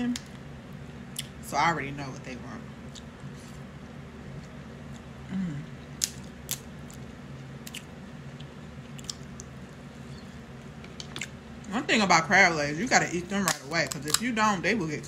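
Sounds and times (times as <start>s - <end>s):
sucking and chewing: 5.9s - 11.4s.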